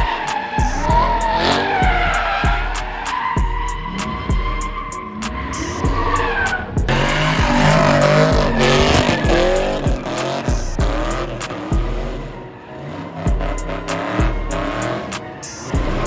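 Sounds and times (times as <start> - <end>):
background music with beat: 0.0 - 12.4, 13.0 - 16.0
tyre squeal: 0.0 - 12.4
car engine revving: 0.0 - 16.0.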